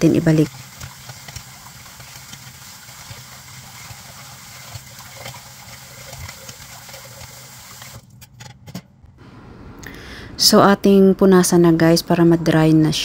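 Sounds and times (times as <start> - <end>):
water hissing at sink: 0.0 - 8.0.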